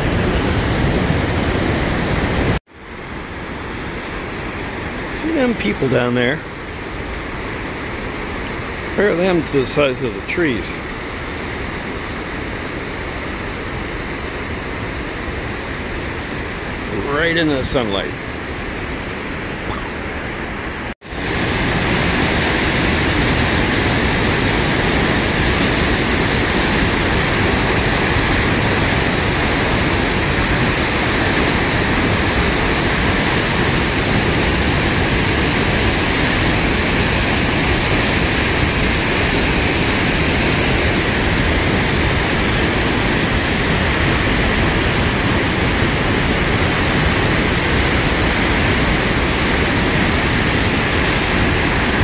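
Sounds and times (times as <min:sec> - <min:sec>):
waterfall rushing: 0:19.7 - 0:52.0.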